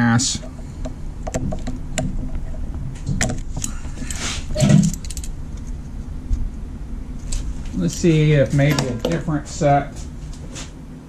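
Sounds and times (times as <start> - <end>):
pliers clinking on metal: 3.6 - 5.3, 7.8 - 9.2.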